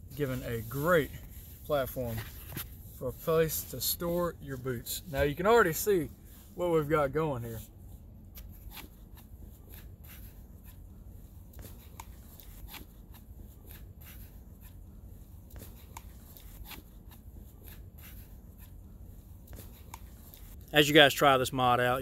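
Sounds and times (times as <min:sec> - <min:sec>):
bootlace clicks and rustles: 0:11.4 - 0:21.0.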